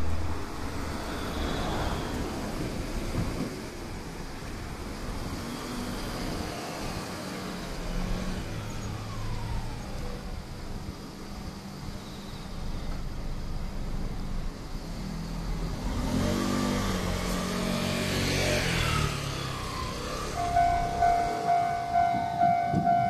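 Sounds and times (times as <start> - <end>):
cars driving past: 0.0 - 10.4, 12.0 - 23.0
falling whine: 19.5 - 23.0.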